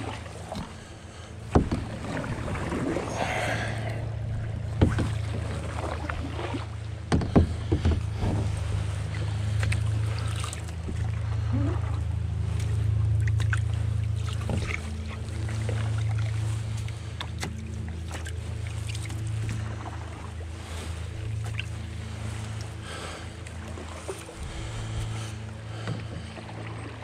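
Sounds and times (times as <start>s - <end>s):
water rushing around boat: 0.0s - 27.0s.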